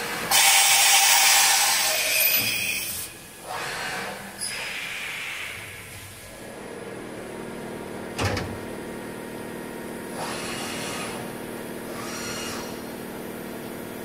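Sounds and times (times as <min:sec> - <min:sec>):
cover shutting clunk: 0:08.2 - 0:08.7
machine spindle hissing: 0:11.9 - 0:12.9.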